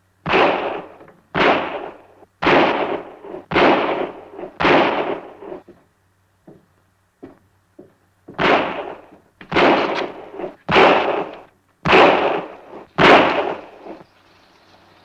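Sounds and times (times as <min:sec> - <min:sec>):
gunshots with echo: 0:00.2 - 0:05.7, 0:08.4 - 0:14.0.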